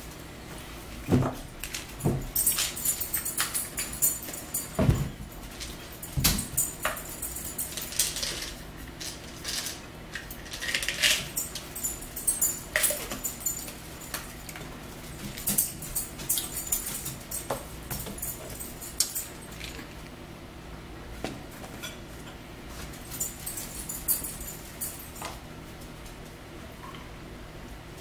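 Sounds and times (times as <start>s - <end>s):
forks and plates clinking: 1.7s - 14.6s.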